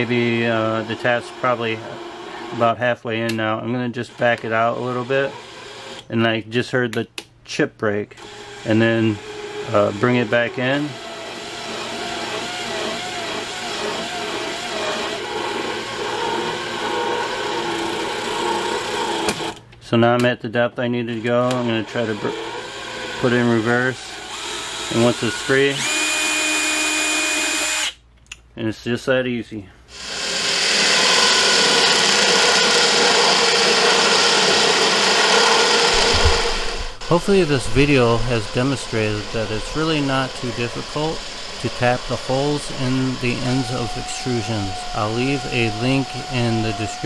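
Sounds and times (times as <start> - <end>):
cordless drill motor whine: 8.2 - 19.6, 24.1 - 28.0, 29.9 - 47.0.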